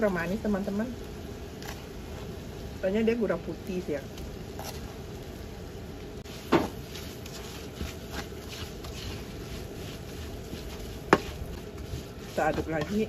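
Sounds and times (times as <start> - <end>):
plastic spatula scraping frying pan: 6.3 - 13.0.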